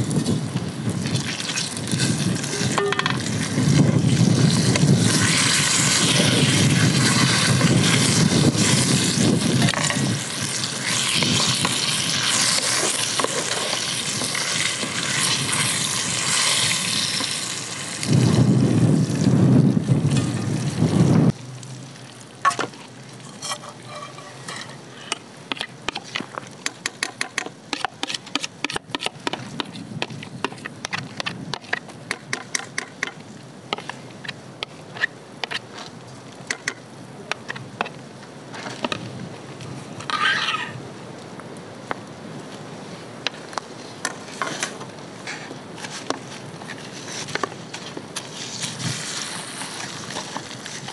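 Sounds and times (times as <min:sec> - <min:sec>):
eggplant sizzling in oil: 0:00.0 - 0:24.8, 0:48.4 - 0:50.9
crackling pops and ticks: 0:30.1 - 0:33.2, 0:35.0 - 0:38.0.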